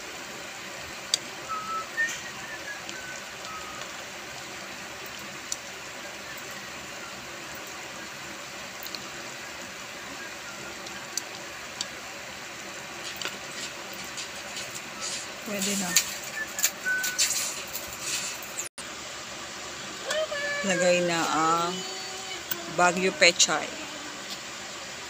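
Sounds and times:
broth boiling: 0.0 - 25.0.

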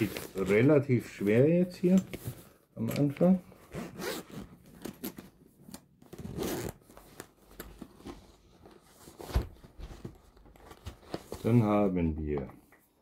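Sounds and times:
zipper being pulled open: 3.7 - 5.2, 6.1 - 6.8.

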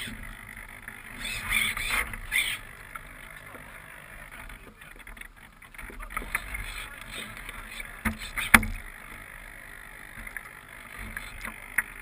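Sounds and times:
water splashing against hull: 1.1 - 9.3.

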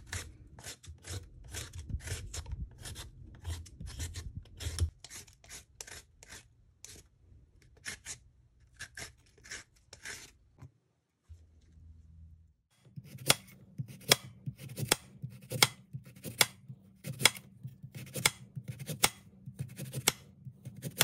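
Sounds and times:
vegetable peeler scraping: 0.0 - 7.1, 12.9 - 21.0.

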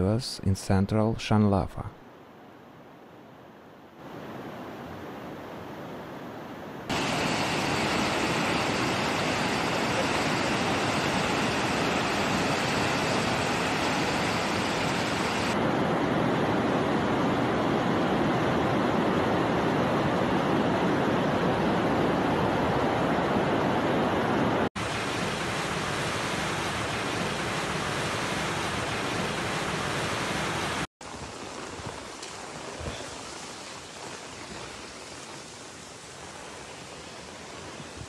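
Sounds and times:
rushing floodwater: 6.9 - 38.0.

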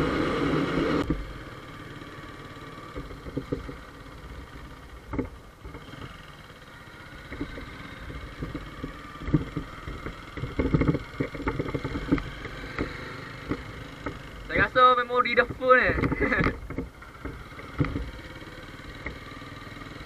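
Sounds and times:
motorcycle engine running: 0.0 - 20.0
road and wind noise: 0.0 - 20.0
short knocks: 7.3 - 14.7.

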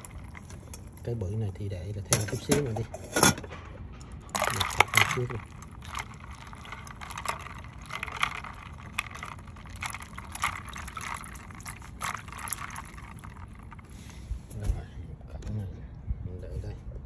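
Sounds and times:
water sloshing and splashing: 0.0 - 1.1, 4.0 - 14.5
ice cubes knocking together: 4.4 - 13.6.

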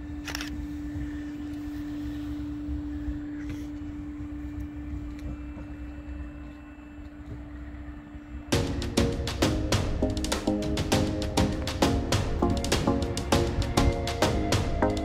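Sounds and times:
low rumble of wind: 0.0 - 15.0
steady hum: 0.0 - 15.0
music: 8.5 - 15.0.

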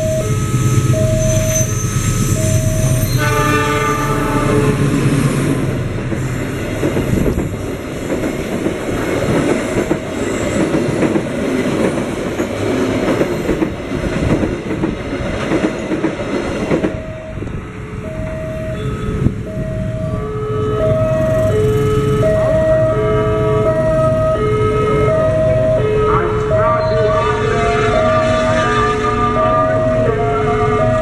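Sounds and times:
train horn: 2.8 - 5.1, 25.8 - 31.0
train wheels clattering: 5.1 - 17.0.

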